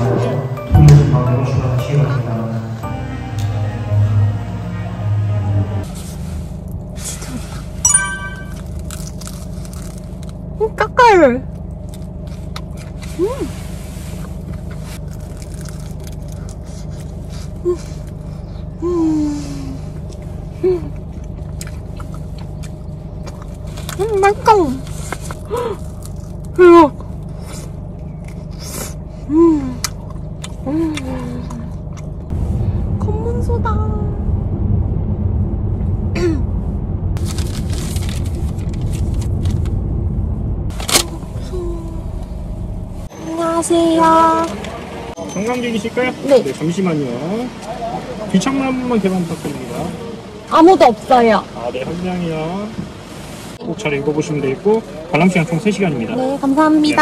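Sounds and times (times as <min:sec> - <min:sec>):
low hum inside car: 0:00.0 - 0:57.0
crackling rustle: 0:08.6 - 0:10.6, 0:11.6 - 0:18.2, 0:37.2 - 0:39.8.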